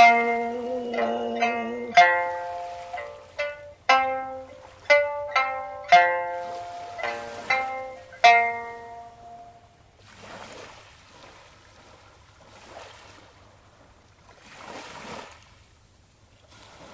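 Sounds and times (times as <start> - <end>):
plucked string note: 0.0 - 9.8
small waves washing ashore: 0.0 - 16.9.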